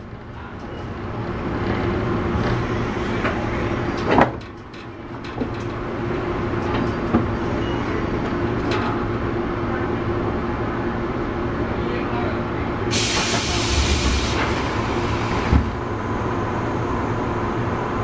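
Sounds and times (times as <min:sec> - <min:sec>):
knocks and clatters: 0:04.0 - 0:05.8
train motor hum: 0:12.9 - 0:17.3.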